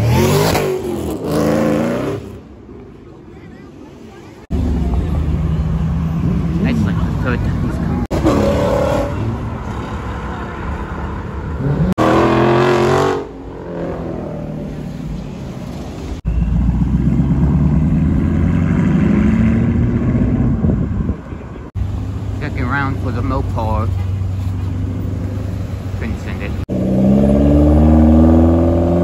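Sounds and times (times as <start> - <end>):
engine revving hard: 11.6 - 13.9, 26.7 - 29.0.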